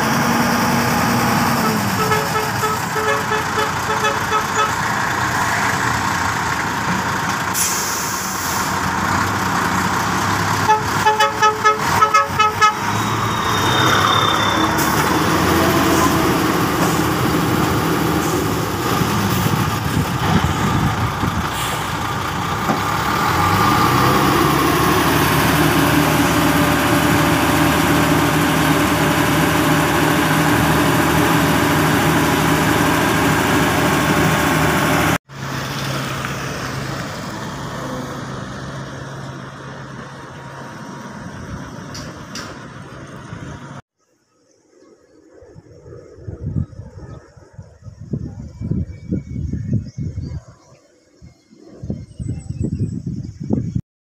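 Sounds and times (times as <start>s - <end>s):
diesel engine running close by: 0.0s - 43.8s
heavy trucks on dirt road: 0.0s - 43.9s
vehicle horn short beeps: 1.9s - 4.8s, 10.7s - 14.6s.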